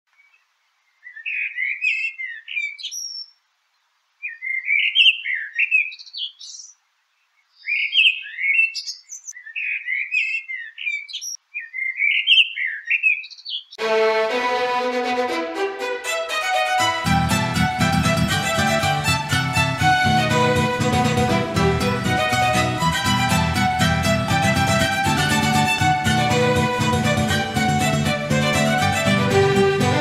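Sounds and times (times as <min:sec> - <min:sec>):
blackbird singing: 0:00.2 - 0:03.4, 0:04.2 - 0:06.8, 0:07.4 - 0:13.8
violin music: 0:13.8 - 0:30.0.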